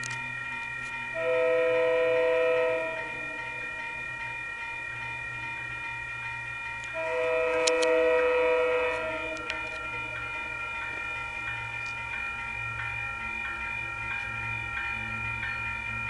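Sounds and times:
train rumble and hum: 0.0 - 16.0
train horn blasts: 1.1 - 3.5, 6.9 - 10.4.

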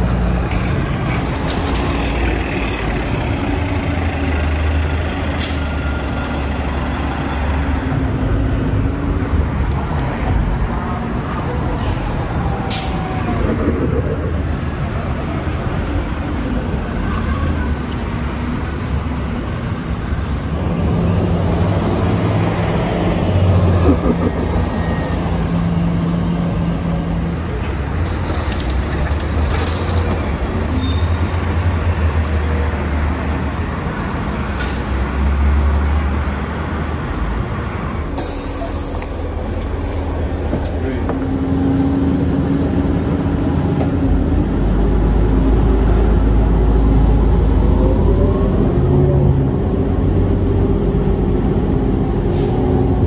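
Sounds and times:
bus engine drone: 0.0 - 53.0
city street traffic: 0.0 - 53.0
air brake hisses: 38.2 - 39.2.

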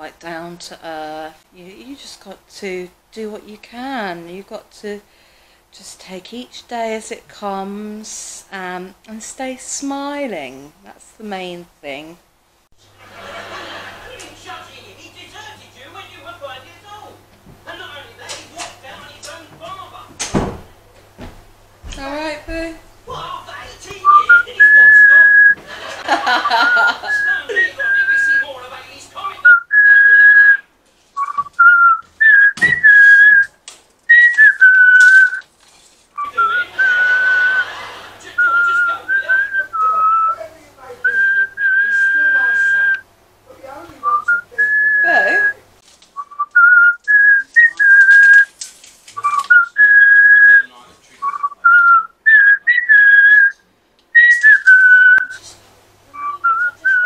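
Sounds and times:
person whistling a tune: 24.0 - 25.6, 26.5 - 28.4, 29.4 - 30.6, 31.2 - 33.5, 34.1 - 35.4, 36.2 - 37.7, 41.1 - 43.0, 46.2 - 48.5, 49.2 - 53.6, 54.2 - 55.4, 56.2 - 57.0.

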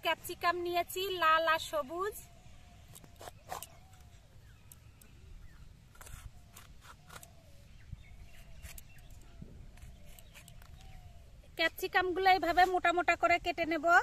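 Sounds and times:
faint bird calls: 2.1 - 11.6.

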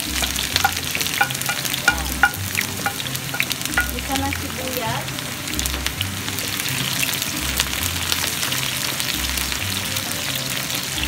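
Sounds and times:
wooden spoon stirring: 0.0 - 4.4
background music bass line: 0.0 - 11.0
onions sizzling in frying pan: 0.0 - 11.0.

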